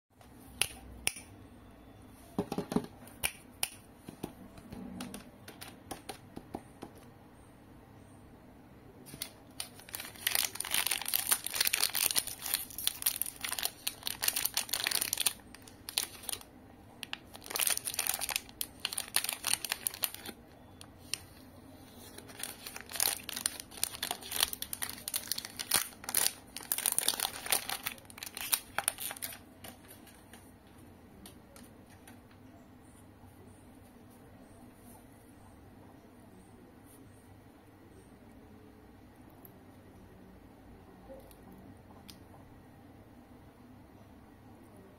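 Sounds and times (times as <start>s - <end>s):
chocolate wrapper crinkling and tearing: 9.1s - 30.2s.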